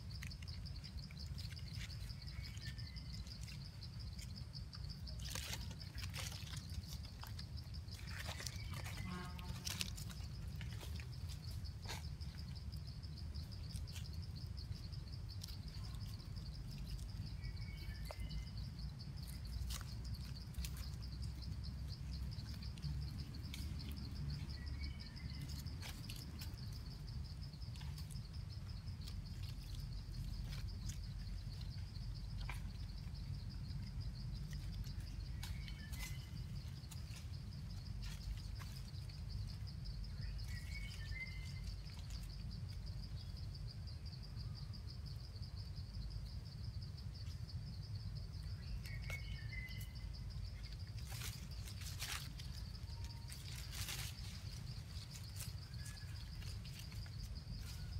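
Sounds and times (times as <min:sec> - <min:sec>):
insects trilling: 0:00.0 - 0:57.9
bird chirps: 0:00.2 - 0:33.3, 0:33.9 - 0:37.4, 0:38.0 - 0:43.3, 0:48.2 - 0:51.4.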